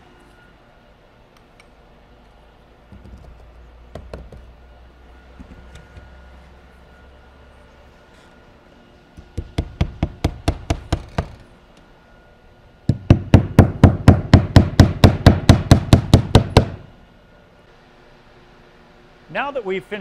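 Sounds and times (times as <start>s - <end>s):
hammer driving nails: 9.2s - 11.4s.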